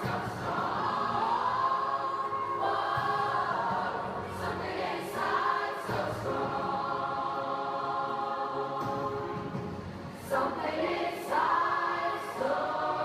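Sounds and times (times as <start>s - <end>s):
choir singing: 0.0s - 13.0s.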